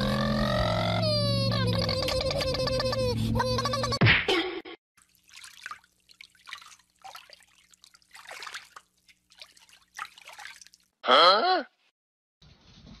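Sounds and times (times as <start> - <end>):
shallow water splashing: 5.0 - 11.0.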